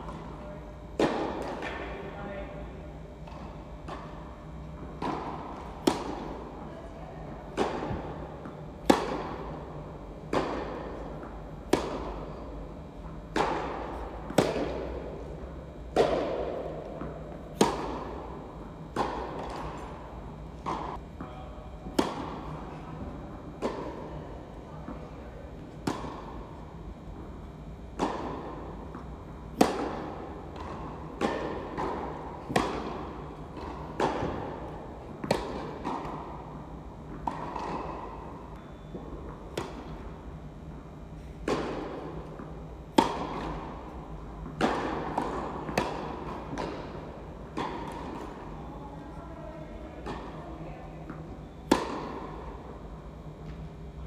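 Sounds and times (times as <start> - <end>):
tennis ball bouncing: 1.0 - 1.8, 4.8 - 6.4, 7.4 - 12.4, 13.0 - 15.2, 15.9 - 21.0, 21.8 - 24.1, 25.7 - 26.4, 28.0 - 40.0, 41.2 - 48.4, 51.1 - 52.6
tennis racket hitting ball: 5.0 - 6.4, 7.5 - 12.3, 13.3 - 15.1, 15.9 - 18.3, 18.9 - 20.0, 21.9 - 22.6, 28.0 - 36.3, 37.1 - 38.0, 41.4 - 48.3, 51.1 - 52.5.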